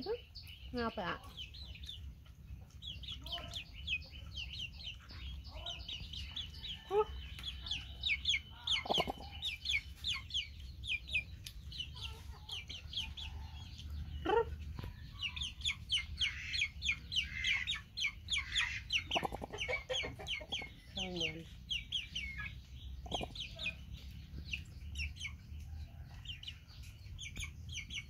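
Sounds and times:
chicks peeping: 0.0 - 28.0
lower chick calls: 8.4 - 9.8, 15.8 - 20.8, 23.0 - 23.8.

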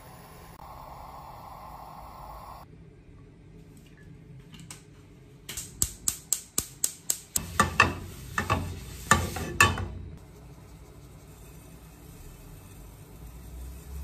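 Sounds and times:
paper towel scraping frying pan: 7.4 - 9.6, 10.4 - 14.0.

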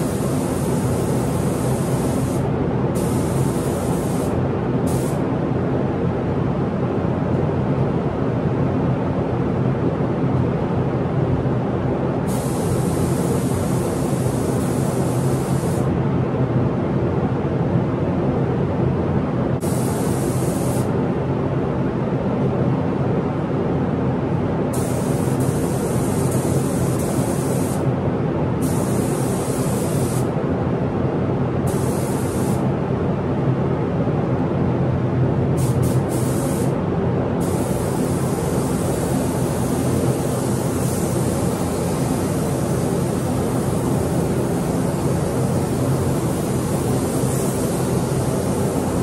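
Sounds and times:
paint spray gun hissing: 0.0 - 5.2, 12.3 - 15.9, 19.6 - 20.9, 24.8 - 27.8, 28.6 - 30.3, 31.7 - 32.6, 35.6 - 36.7, 37.4 - 49.0.

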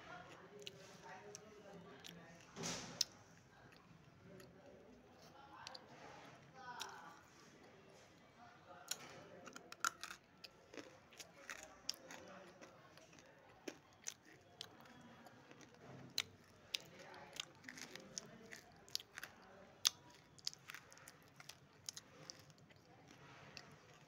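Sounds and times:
soft grinding of chewing: 0.0 - 24.0
chewing crunches: 8.9 - 24.0.

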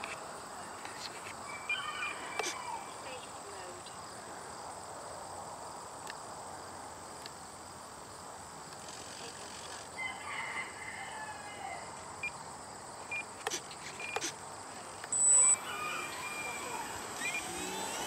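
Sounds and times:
high insect trill: 0.0 - 18.0.

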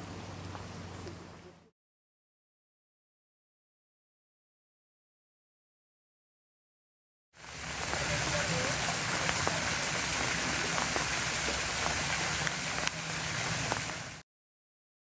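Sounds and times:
water cascade splashing into pool: 7.4 - 14.2.

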